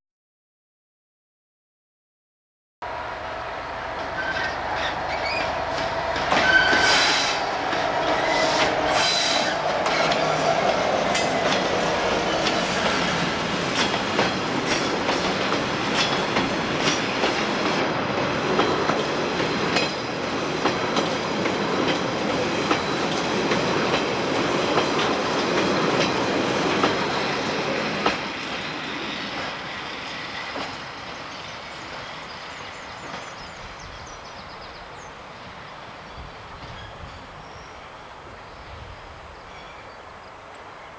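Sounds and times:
diesel locomotive passing: 2.8s - 40.9s
wheel squeal: 4.1s - 10.5s
train wagons clattering over rail joints: 4.2s - 17.8s.

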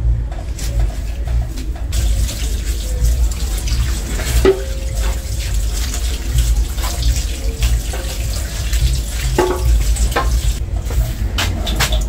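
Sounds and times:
low rumble: 0.0s - 12.0s
tap water running into sink: 0.7s - 10.6s
shell knocking against sink: 3.7s - 10.6s.

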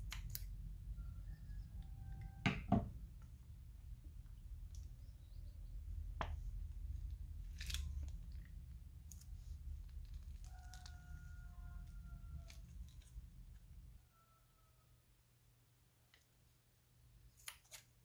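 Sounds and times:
low steady hum: 0.0s - 18.0s
plastic piping bag crinkling: 6.7s - 13.7s.

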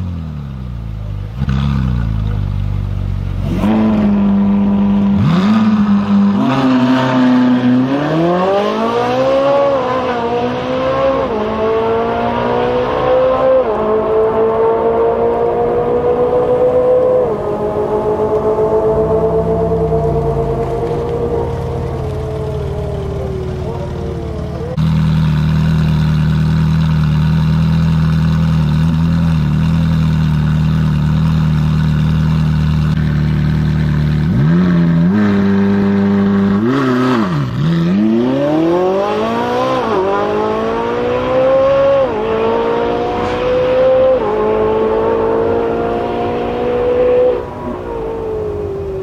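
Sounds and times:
car engine idling and revving: 0.0s - 49.0s
car accelerating through upshifts: 3.4s - 26.0s, 33.9s - 49.0s.

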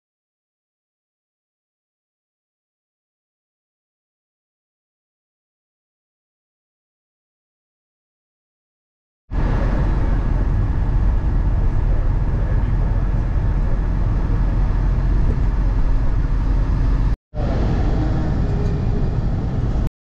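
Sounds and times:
bus engine and road rumble: 9.3s - 19.9s.

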